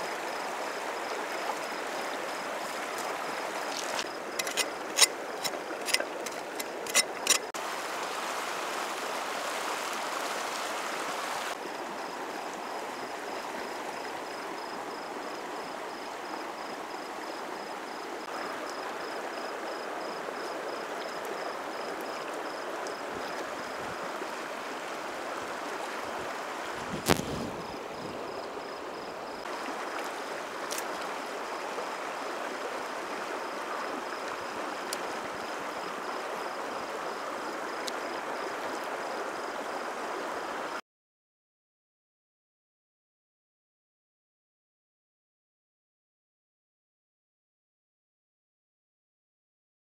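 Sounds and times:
river water rushing: 0:00.0 - 0:14.4, 0:18.3 - 0:40.8.

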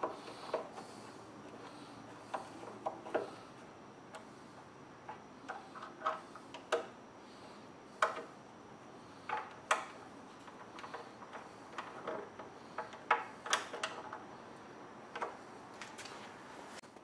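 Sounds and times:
light clicks and knocks of tools: 0:01.5 - 0:03.4, 0:05.0 - 0:07.0, 0:08.0 - 0:08.3, 0:09.2 - 0:14.3, 0:15.1 - 0:16.3.

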